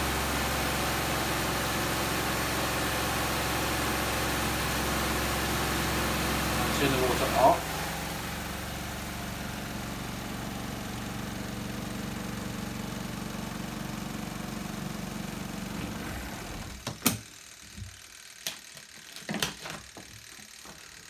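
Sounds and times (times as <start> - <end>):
spin dryer motor humming: 0.0 - 21.0.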